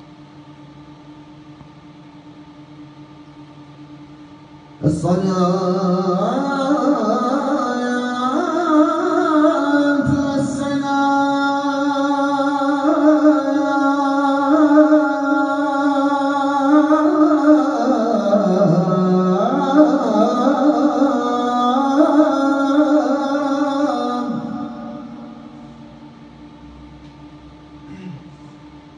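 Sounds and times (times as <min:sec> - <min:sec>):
man chanting solo: 0:04.8 - 0:25.9.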